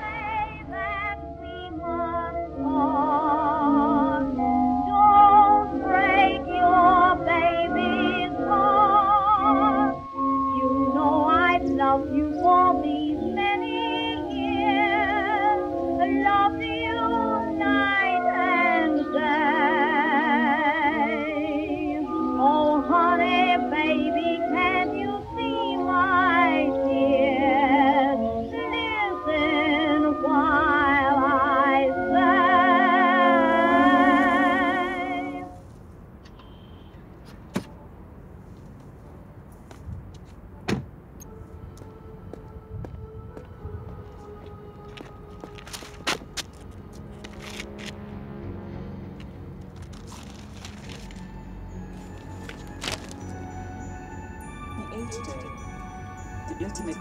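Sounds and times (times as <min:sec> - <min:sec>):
woman singing with vibrato: 0:00.0 - 0:35.6, 0:56.4 - 0:57.0
instrumental accompaniment: 0:41.2 - 0:57.0.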